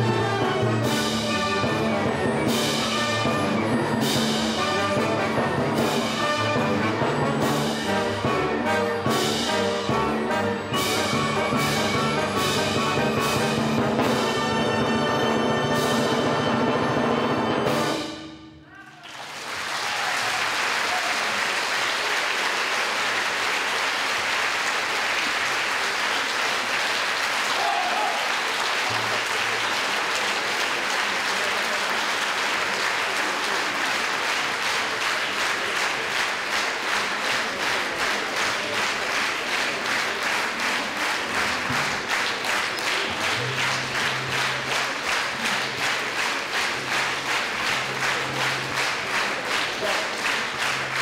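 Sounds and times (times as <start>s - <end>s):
rhythmic clapping: 0.6s - 15.8s, 28.2s - 51.0s
audience applauding: 18.9s - 51.0s.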